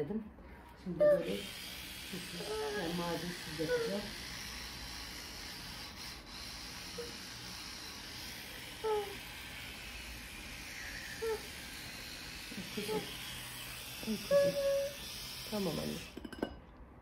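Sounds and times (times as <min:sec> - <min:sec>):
toothbrush scrubbing teeth: 0:01.1 - 0:16.2
child vocal sounds: 0:08.7 - 0:09.4, 0:11.1 - 0:11.6, 0:14.0 - 0:15.1.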